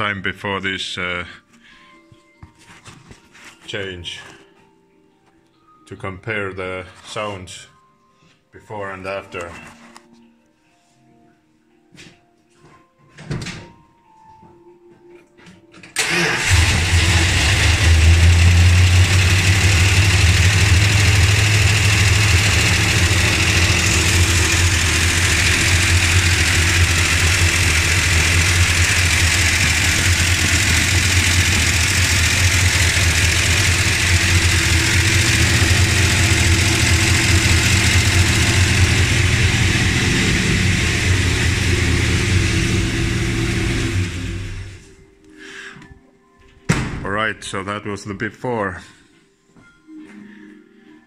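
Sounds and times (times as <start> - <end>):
engine ticking: 16.0 - 44.8
engine starting and idling: 16.0 - 45.0.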